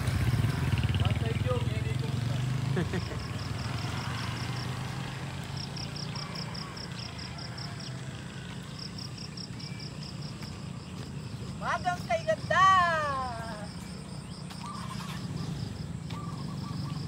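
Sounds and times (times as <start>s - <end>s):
low engine hum: 0.0s - 17.0s
insect chirping in short pulses: 13.7s - 17.0s.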